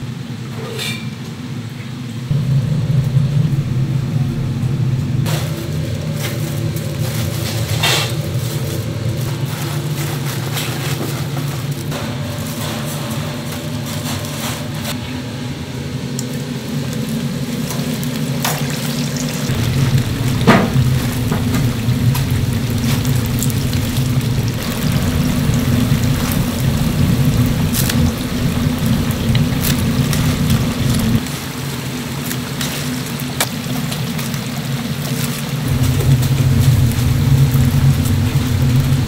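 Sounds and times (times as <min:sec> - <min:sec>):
low rumble: 0:02.3 - 0:10.1, 0:19.0 - 0:31.2, 0:35.6 - 0:39.0
chicken sizzling in hot oil: 0:15.8 - 0:39.0.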